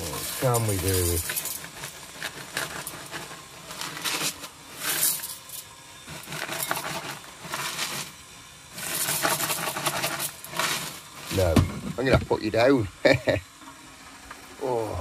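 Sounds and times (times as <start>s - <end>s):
cereal pouring into a bowl: 0.0s - 11.5s.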